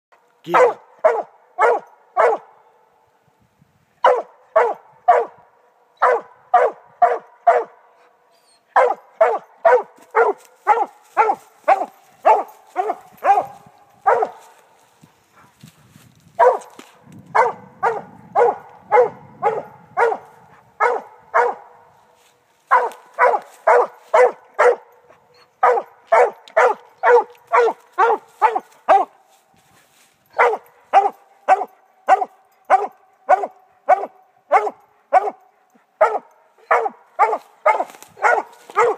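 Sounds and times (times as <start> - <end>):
dog barking fast: 0.5 - 2.5, 4.0 - 5.4, 6.0 - 7.7, 8.8 - 14.4, 16.4 - 16.7, 17.4 - 21.8, 22.7 - 24.8, 25.6 - 29.1, 30.4 - 35.4, 36.0 - 38.9.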